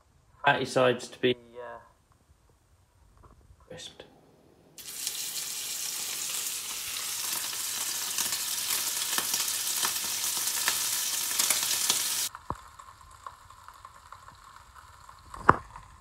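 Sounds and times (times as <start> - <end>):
steak sizzling in frying pan: 4.8 - 16.0.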